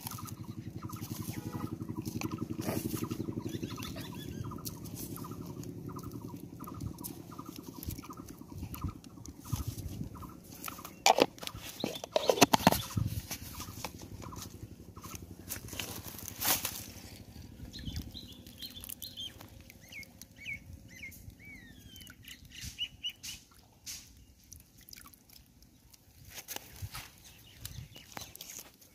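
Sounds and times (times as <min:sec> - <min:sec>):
hands scooping dry bran: 0:00.0 - 0:08.4, 0:09.3 - 0:20.3
steady regular pulsing: 0:00.0 - 0:11.1
plastic clicks and knocks: 0:10.7 - 0:13.0.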